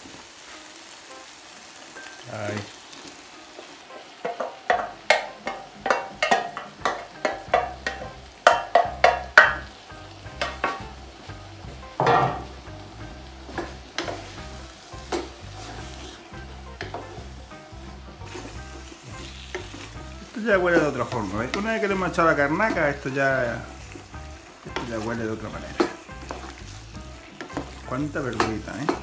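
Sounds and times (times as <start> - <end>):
meat sizzling in a pan: 0.0 - 29.0
wooden spoon stirring stew: 2.6 - 9.8, 10.4 - 29.0
wooden spoon knocking on dish: 4.2 - 9.7, 10.4 - 11.0, 12.0 - 12.6, 13.5 - 14.3, 16.8 - 17.3, 27.4 - 29.0.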